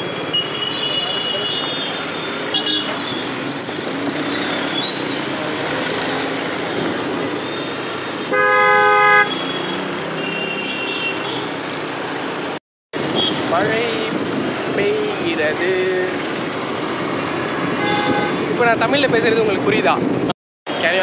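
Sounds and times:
road noise: 0:00.0 - 0:21.0
loud vehicle horn blast: 0:08.3 - 0:11.5, 0:17.8 - 0:18.5.

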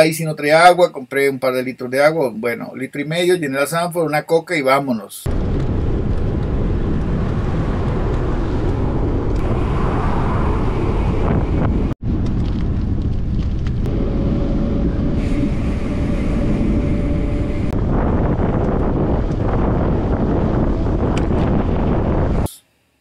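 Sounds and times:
wind buffeting microphone: 0:05.3 - 0:22.6
steady hum: 0:13.5 - 0:23.0.

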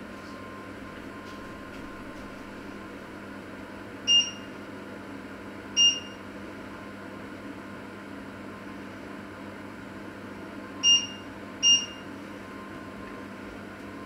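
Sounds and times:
steady background hum: 0:00.0 - 0:14.0
short electronic beeps: 0:04.1 - 0:04.5, 0:05.8 - 0:06.2, 0:10.8 - 0:12.0.

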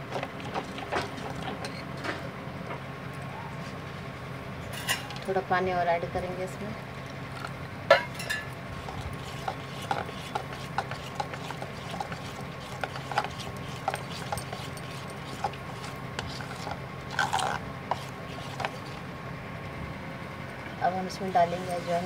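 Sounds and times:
steady low hum: 0:00.0 - 0:22.0
spoon scraping metal bowl: 0:08.2 - 0:19.1.

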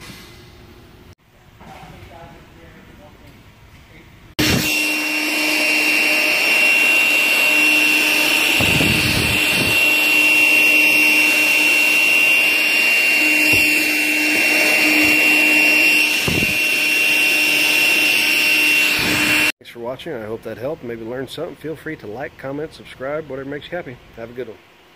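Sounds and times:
handheld vacuum running: 0:04.4 - 0:19.5
nozzle bumping: 0:13.4 - 0:13.9.

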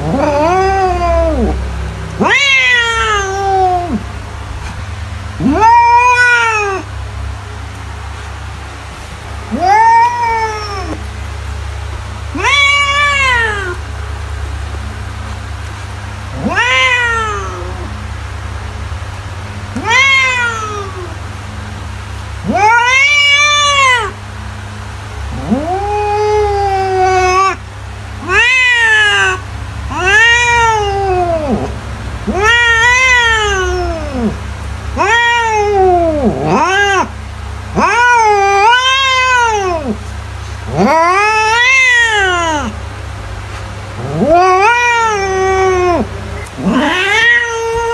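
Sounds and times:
cat meowing: 0:00.0 - 0:01.6, 0:02.2 - 0:04.0, 0:05.4 - 0:06.9, 0:09.5 - 0:11.0, 0:12.3 - 0:13.9, 0:16.3 - 0:18.0, 0:19.7 - 0:21.2, 0:22.4 - 0:24.2, 0:25.3 - 0:27.6, 0:28.2 - 0:40.0, 0:40.7 - 0:42.8, 0:44.0 - 0:47.9
steady low hum: 0:00.0 - 0:47.9.

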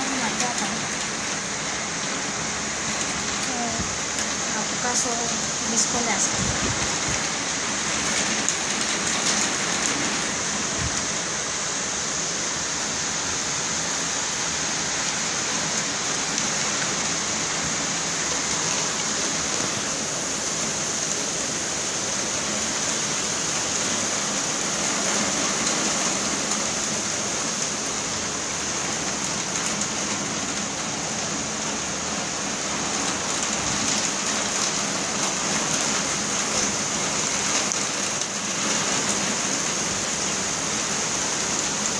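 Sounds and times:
torrential rain hissing: 0:00.0 - 0:41.9.

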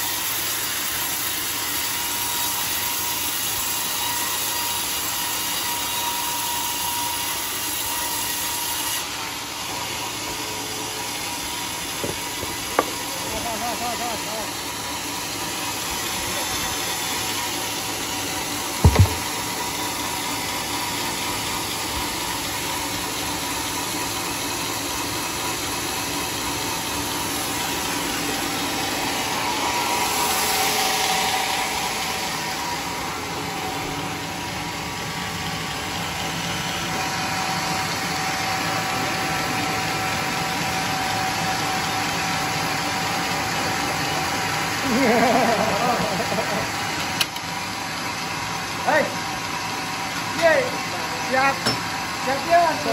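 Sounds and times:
band sawmill running: 0:00.0 - 0:52.9
sharp knock: 0:18.8 - 0:19.4.

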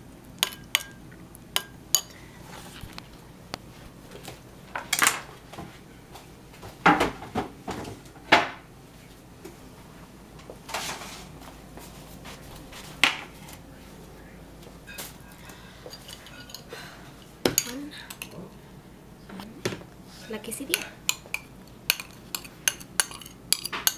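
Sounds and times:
cookware and utensils clanking: 0:14.8 - 0:18.5, 0:20.4 - 0:23.9.

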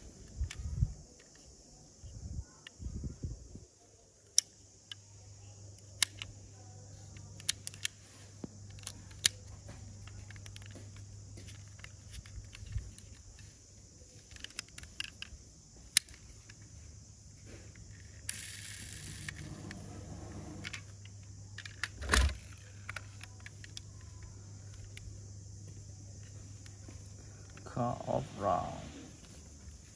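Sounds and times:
steady low hum: 0:00.0 - 0:29.9
toy car clicks and taps: 0:05.9 - 0:06.3, 0:14.3 - 0:16.2, 0:17.9 - 0:19.4.

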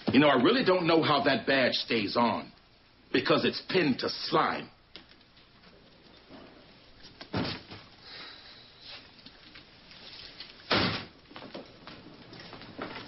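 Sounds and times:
door slamming shut: 0:07.3 - 0:07.8, 0:10.7 - 0:11.2.

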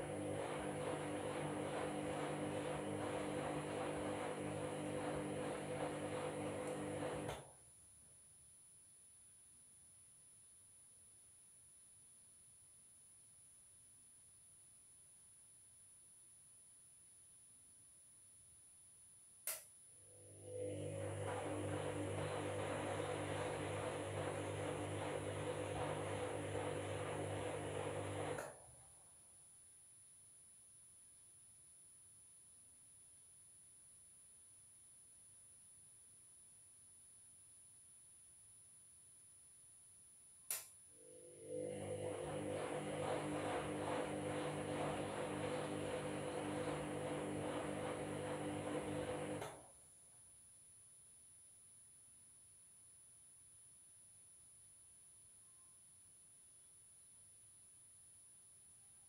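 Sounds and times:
washing machine motor hum: 0:00.0 - 0:07.5, 0:20.0 - 0:28.7, 0:41.0 - 0:49.7.

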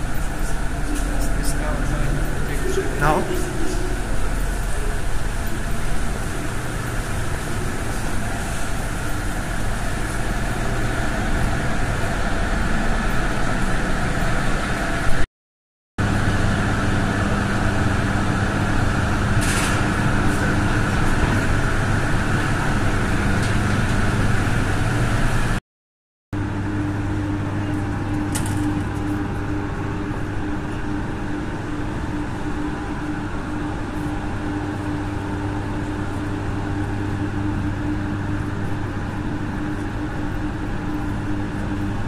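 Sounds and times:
steady low tones: 0:00.0 - 0:15.1
machinery hum: 0:00.0 - 0:15.2, 0:16.0 - 0:25.6, 0:26.4 - 0:42.0.

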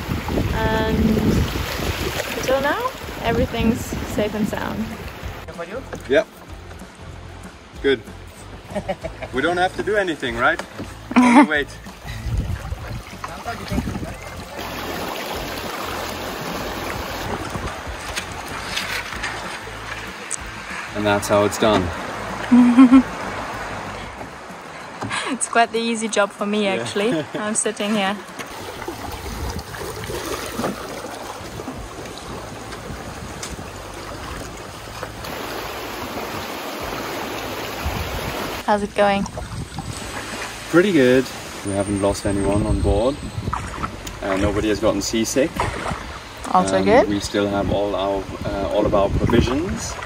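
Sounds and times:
river water rushing over riffles: 0:00.0 - 0:06.2, 0:09.4 - 0:42.0.

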